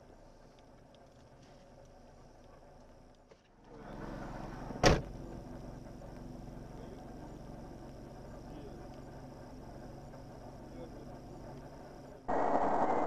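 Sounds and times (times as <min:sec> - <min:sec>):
car engine idling: 0:00.0 - 0:13.0
car door slamming: 0:04.8 - 0:05.1.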